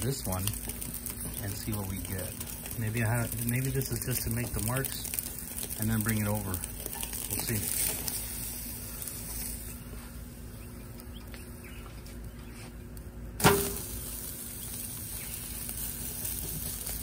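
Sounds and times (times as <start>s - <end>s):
steaks sizzling on a grill: 0.0s - 10.6s, 13.4s - 17.0s
faint steady hum: 0.0s - 17.0s
sharp metallic clank: 13.4s - 13.9s.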